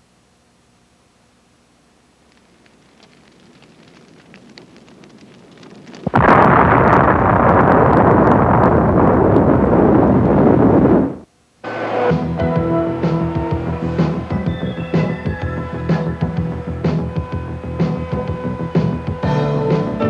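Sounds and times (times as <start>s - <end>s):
fire crackling: 1.4s - 20.0s
loud explosion blast: 5.9s - 11.2s.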